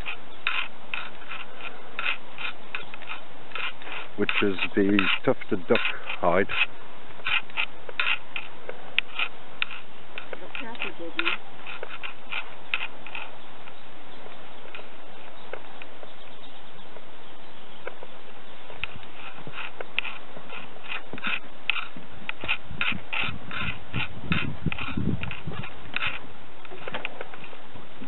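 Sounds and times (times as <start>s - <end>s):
footsteps on wooden boardwalk: 0.0s - 28.0s.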